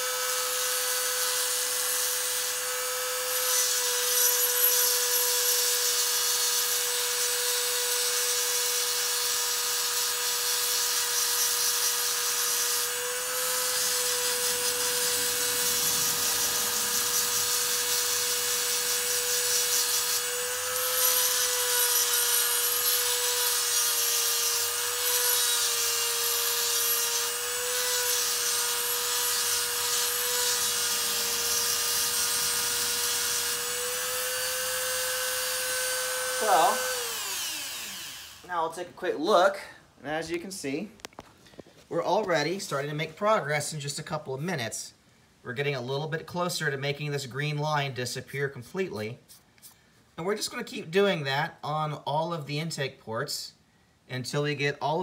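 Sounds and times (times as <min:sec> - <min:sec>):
rotary tool grinding metal: 0:00.0 - 0:38.6.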